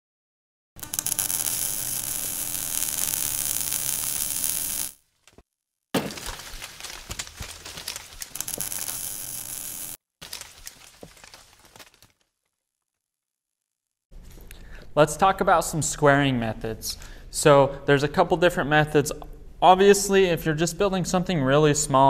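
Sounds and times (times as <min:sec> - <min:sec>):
crackling hiss: 0:00.8 - 0:05.0, 0:08.3 - 0:10.0
breaking debris: 0:06.0 - 0:09.5, 0:10.2 - 0:12.2.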